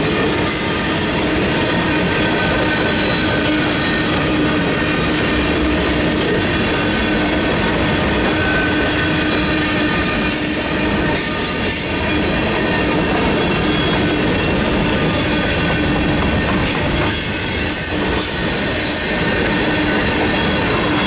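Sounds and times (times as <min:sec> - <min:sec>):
freight train wheels rumbling: 0:00.0 - 0:21.0
wheel squeal: 0:02.3 - 0:05.3, 0:08.3 - 0:16.0.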